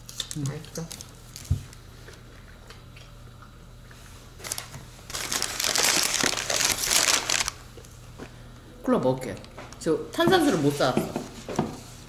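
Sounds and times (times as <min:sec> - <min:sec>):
food packaging crinkling: 0:04.4 - 0:07.9.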